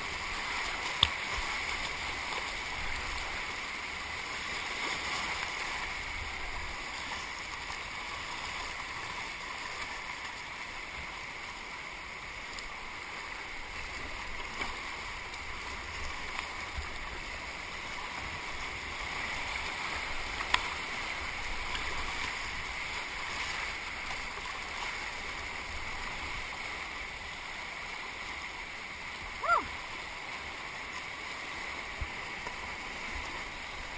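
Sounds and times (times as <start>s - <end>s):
paddle strokes splashing: 0.0s - 33.9s
rushing whitewater: 0.0s - 33.9s.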